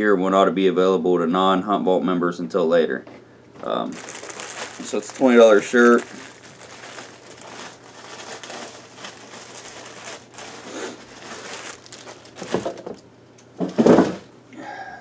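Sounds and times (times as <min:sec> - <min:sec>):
plastic bag crinkling and rustling: 0:03.8 - 0:13.0.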